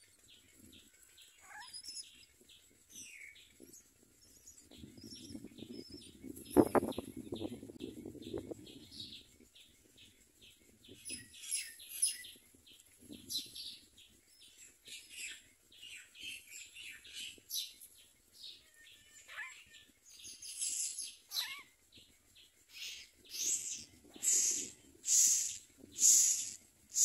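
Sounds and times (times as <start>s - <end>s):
nestlings begging chirps: 0.4s - 3.5s, 18.4s - 22.0s, 22.7s - 27.0s
bird sliding calls: 22.8s - 27.0s.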